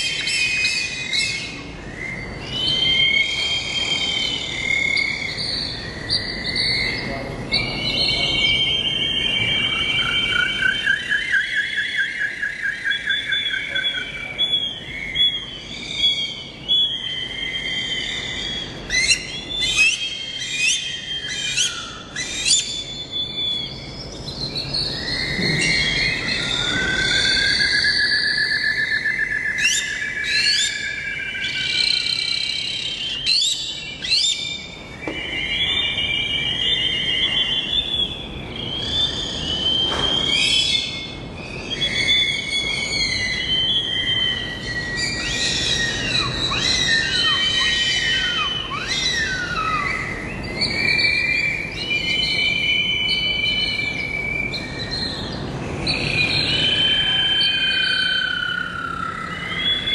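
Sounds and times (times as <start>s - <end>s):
chorus of birds singing: 0.0s - 59.9s.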